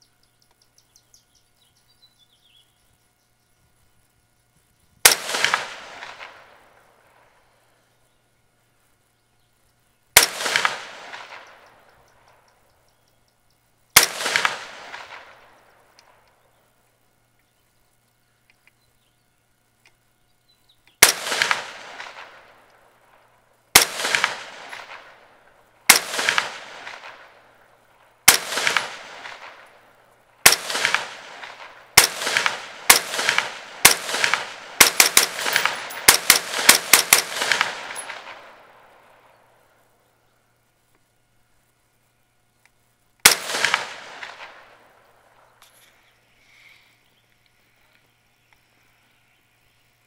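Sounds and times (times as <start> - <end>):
rifle shots with echo: 5.0 - 7.4, 10.2 - 12.5, 13.9 - 16.2, 21.0 - 39.8, 43.2 - 45.6.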